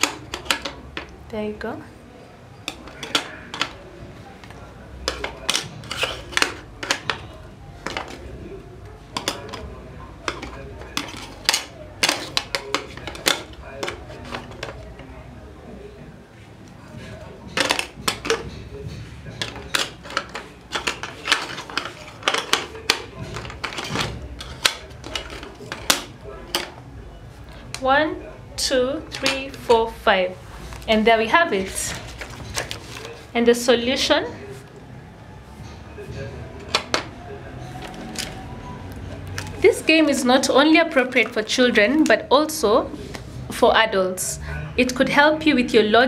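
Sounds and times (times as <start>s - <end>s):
plastic clicks and clacks: 19.3s - 26.8s.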